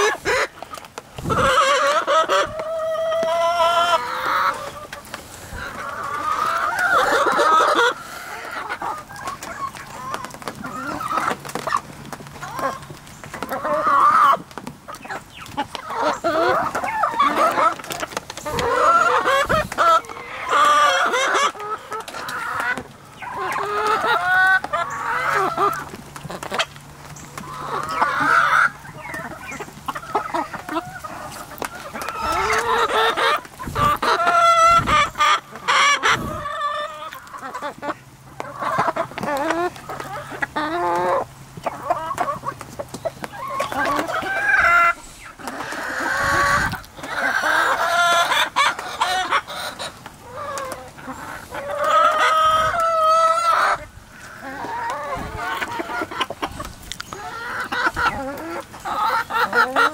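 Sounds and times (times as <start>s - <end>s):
hens clucking and squawking: 0.0s - 59.9s.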